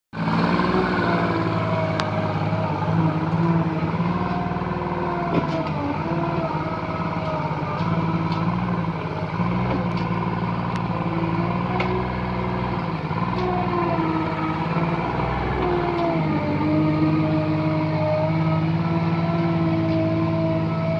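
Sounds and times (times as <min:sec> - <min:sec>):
skid steer loader engine running: 0:00.2 - 0:20.9.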